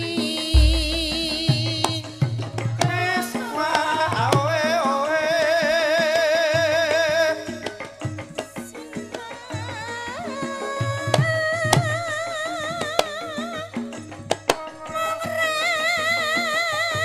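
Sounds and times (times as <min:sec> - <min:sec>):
deep gong stroke: 0:00.6 - 0:01.6
drum strokes: 0:00.6 - 0:02.0
high voice singing with vibrato: 0:00.6 - 0:02.0.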